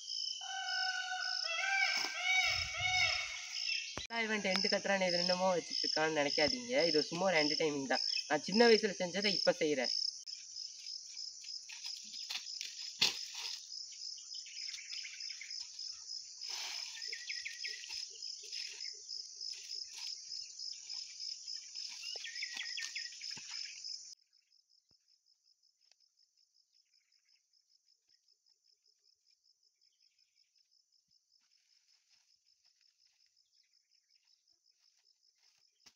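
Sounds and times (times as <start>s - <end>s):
insect chirring: 0.0s - 25.0s.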